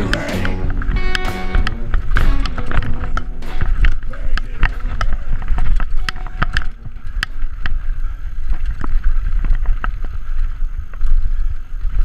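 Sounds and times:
wind rumbling on microphone: 0.0 - 12.0
bike clicks and rattles over rocks: 0.1 - 12.0.

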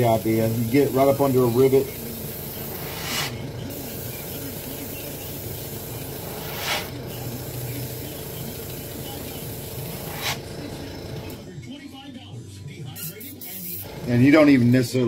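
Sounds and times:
airbrush spray hiss: 0.0 - 10.4, 13.0 - 13.9
steady low hum: 0.0 - 11.6, 13.8 - 15.0.

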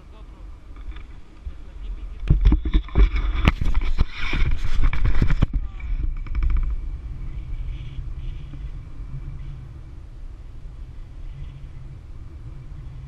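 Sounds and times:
wind rumble on microphone: 0.0 - 13.0
sharp knocks and crackles: 0.7 - 8.7.

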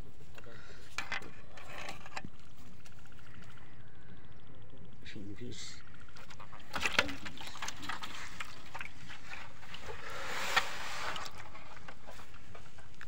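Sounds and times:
fish splashing in metal basin: 6.2 - 10.0.

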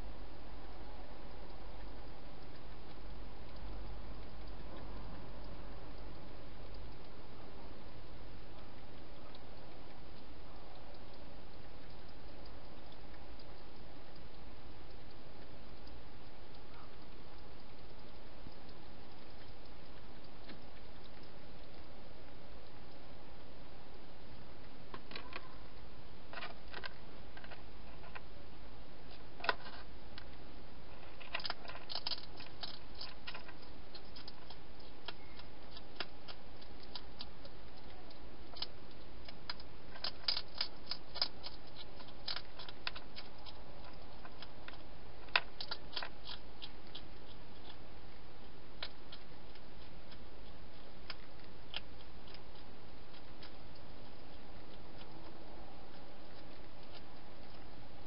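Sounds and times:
background hiss: 0.0 - 58.0
hedgehog crunching dry food: 26.3 - 28.4, 29.1 - 58.0.

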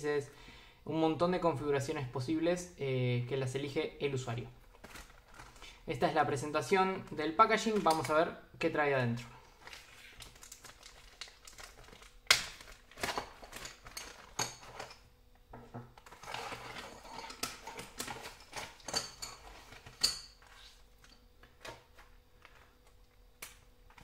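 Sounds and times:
plastic bag crinkling: 4.6 - 5.9, 9.3 - 14.9.

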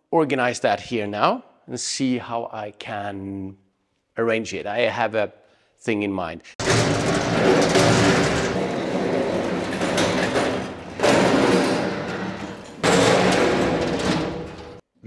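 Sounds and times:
steel cabinets scraping concrete: 6.6 - 14.8.

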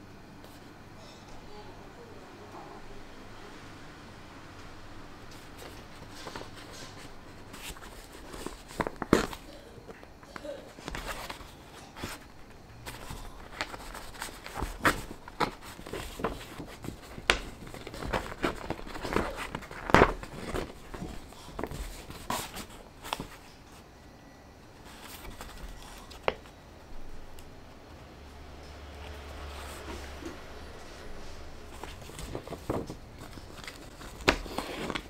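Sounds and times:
paper rustling and crinkling: 5.3 - 23.9, 24.8 - 27.2, 28.8 - 35.0.

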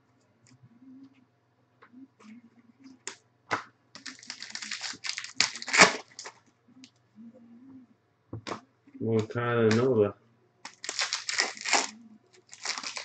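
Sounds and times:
wrapper tearing and crinkling: 4.0 - 6.4, 10.6 - 13.0.

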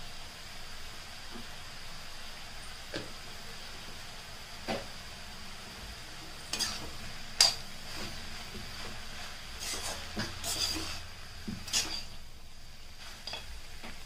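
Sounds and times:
light steady sizzle: 0.0 - 14.0
ladle scraping and knocking pan: 6.5 - 7.6, 9.6 - 12.2.

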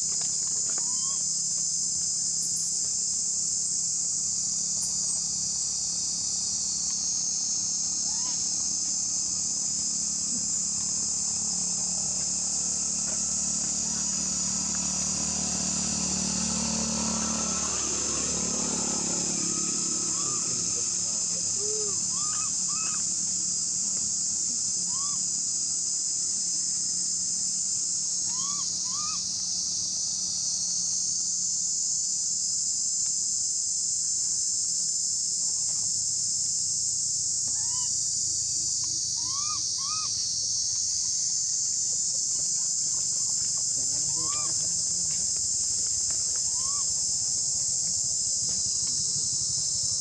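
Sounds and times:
high-pitched insect chorus: 0.0 - 50.0
short squeaky calls: 0.7 - 1.3, 8.0 - 8.5, 20.1 - 20.7, 21.6 - 23.1, 24.8 - 25.3, 28.3 - 29.3, 37.5 - 38.1, 39.2 - 40.3, 44.0 - 44.7, 46.4 - 47.1.

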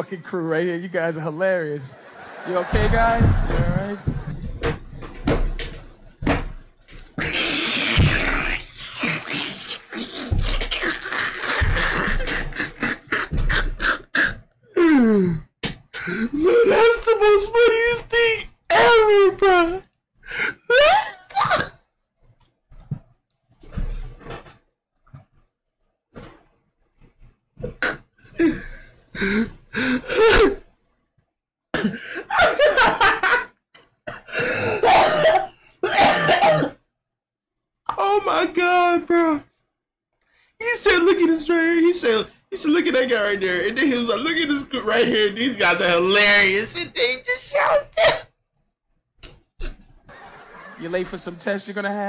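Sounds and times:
man laughing hard: 1.9 - 4.4, 32.2 - 33.5
man coughing: 31.7 - 33.0, 34.1 - 36.8.

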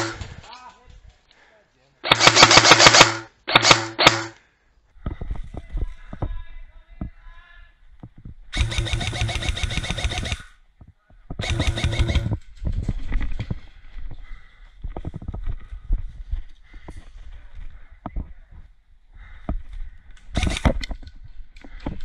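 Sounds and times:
airsoft rifle full-auto bursts: 2.1 - 4.3, 8.5 - 10.5, 11.4 - 12.4, 20.4 - 20.8.

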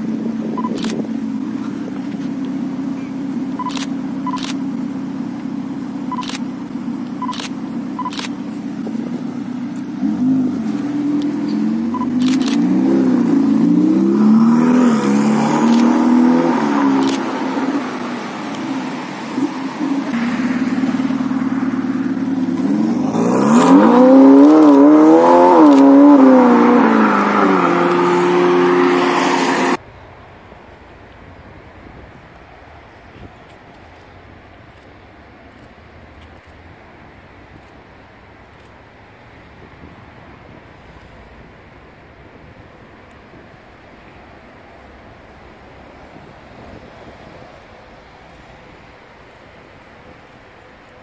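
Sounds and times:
car engine running at low revs: 0.0 - 26.9.

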